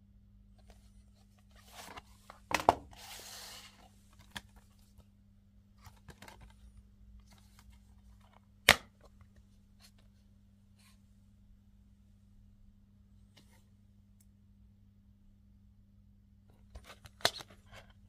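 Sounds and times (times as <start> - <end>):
faint hum: 0.0 - 18.0
plastic case snapping open: 8.6 - 8.9.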